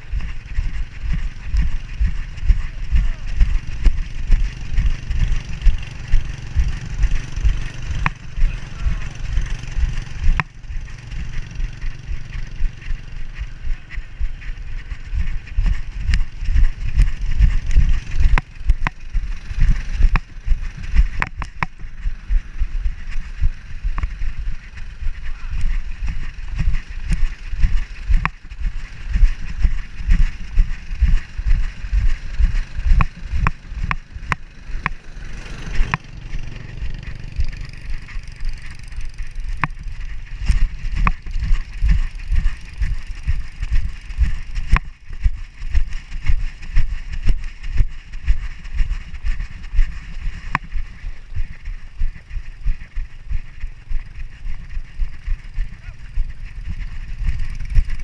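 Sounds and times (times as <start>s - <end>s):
sharp clicks: 3.3s - 14.0s, 14.8s - 22.5s, 23.9s - 46.5s.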